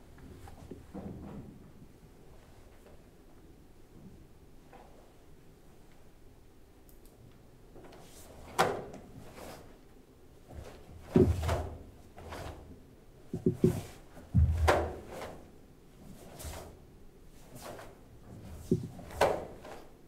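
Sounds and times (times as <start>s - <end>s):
bare feet thudding on wooden floor: 11.1s - 11.8s, 13.3s - 15.2s, 18.6s - 19.3s
quick knocks: 13.3s - 15.1s
wooden staff swishing: 13.4s - 15.5s, 16.1s - 16.8s, 17.4s - 19.9s.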